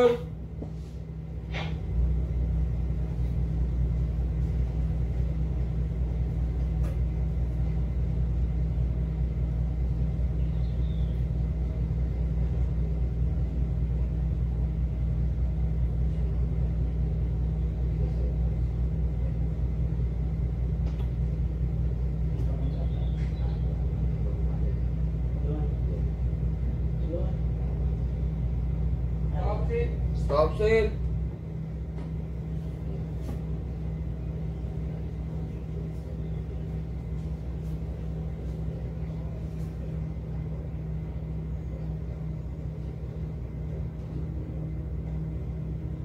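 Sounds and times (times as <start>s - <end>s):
ferry engines droning: 0.0s - 46.0s.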